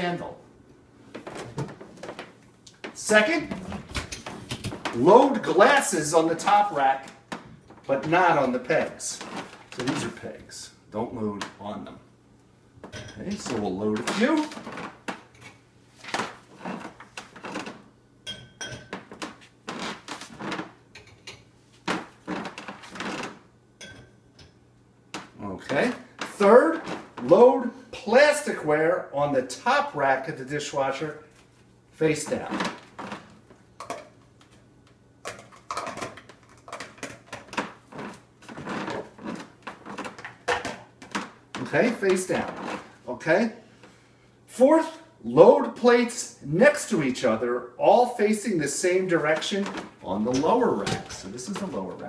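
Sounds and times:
glasses clinking: 12.9 - 13.4, 18.2 - 19.0, 23.8 - 24.5
glass ringing: 18.2 - 18.9
plastic containers clattering on rack: 35.2 - 42.9.

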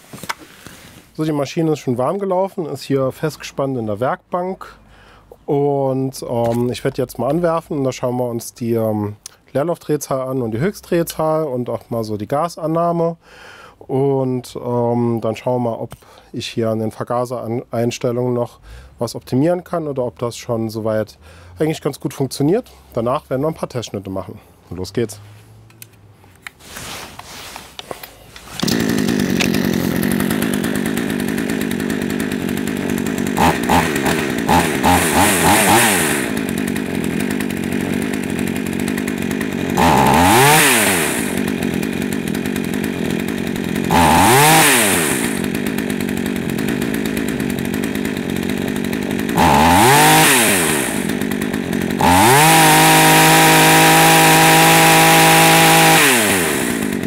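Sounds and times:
chainsaw engine revving: 28.4 - 57.0.

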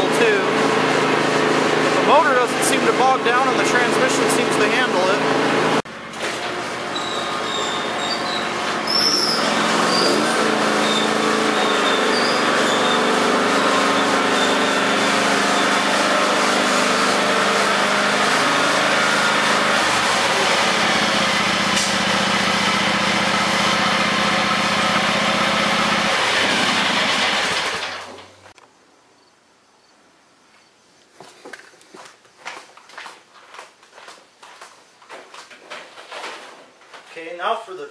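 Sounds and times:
lawn tractor engine running: 0.0 - 28.6.

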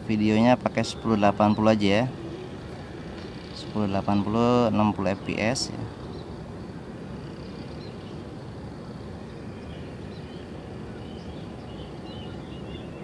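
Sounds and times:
low outdoor background noise: 0.0 - 13.0
faint bird chirps: 3.2 - 13.0.

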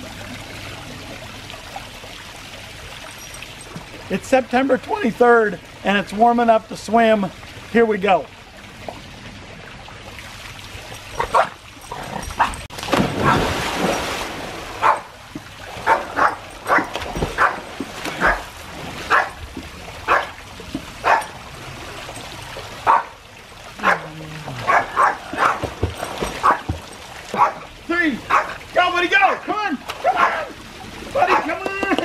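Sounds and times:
small dog barking: 11.2 - 11.6, 14.8 - 15.1, 15.9 - 17.6, 20.1 - 20.4, 21.0 - 21.3, 22.9 - 23.2, 23.8 - 25.6, 27.4 - 27.6, 28.3 - 28.5, 30.0 - 30.5
person splashing into pool: 12.4 - 19.9.

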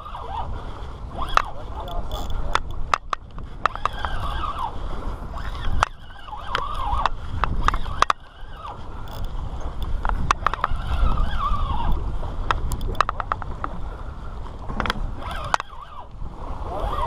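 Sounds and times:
fishing reel drag screaming: 0.0 - 2.6, 3.6 - 12.1, 15.2 - 17.0
clicks and knocks of rod handling: 1.2 - 4.6, 5.3 - 13.8, 14.5 - 15.9.

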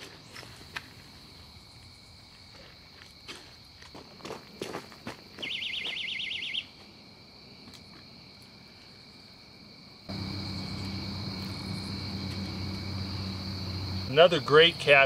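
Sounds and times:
crickets trilling: 0.0 - 15.0
steady low hum: 10.1 - 15.0.

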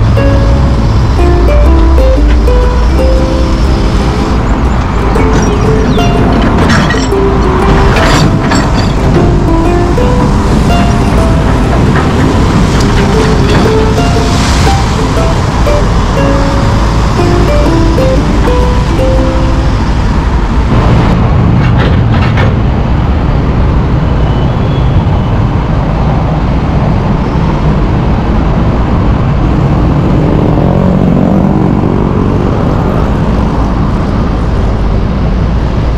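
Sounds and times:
excavator diesel engine running: 0.0 - 23.4.

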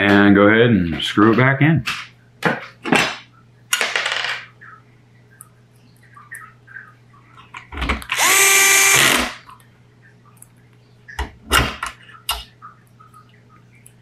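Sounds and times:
power drill driving a screw: 8.1 - 9.4.

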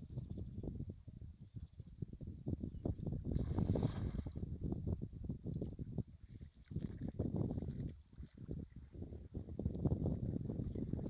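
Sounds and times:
wind rumbling on microphone: 0.0 - 11.0
net splashing into water: 3.4 - 4.4.

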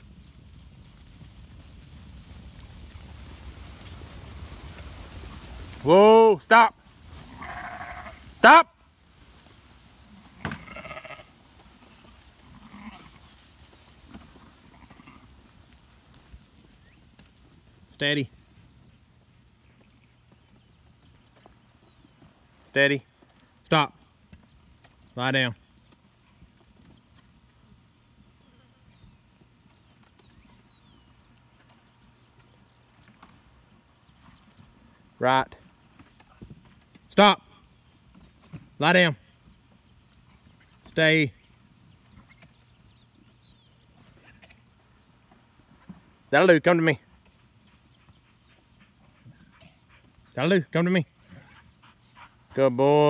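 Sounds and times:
sheep bleating: 7.2 - 8.2, 10.2 - 13.2, 14.7 - 15.3.

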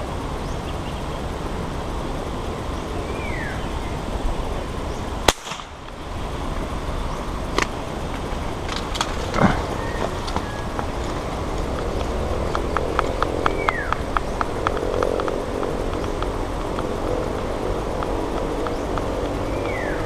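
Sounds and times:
low background noise: 0.0 - 20.0
air rifle shot: 5.2 - 5.9.

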